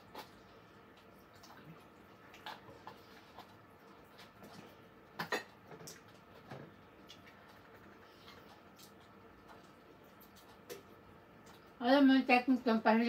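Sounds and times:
chewing and sucking mouth sounds: 0.0s - 11.8s.

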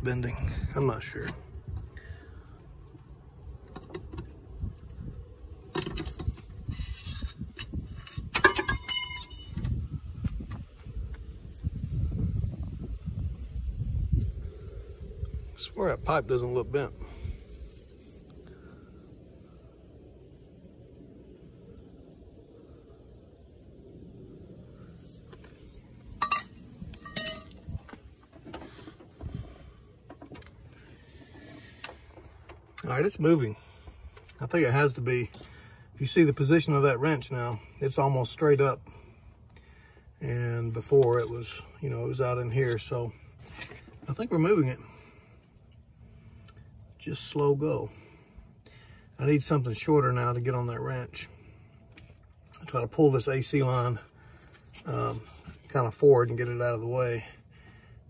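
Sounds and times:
metal pipe clanking and ringing: 8.3s - 9.9s, 26.2s - 27.6s
sharp metallic clinks: 8.4s - 9.8s
scraping and handling noises: 24.9s - 32.7s.

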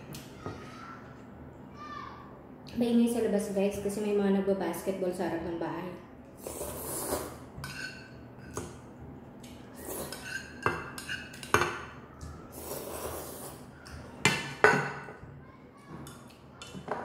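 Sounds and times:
noodles being slurped: 6.4s - 7.4s, 12.5s - 13.7s.

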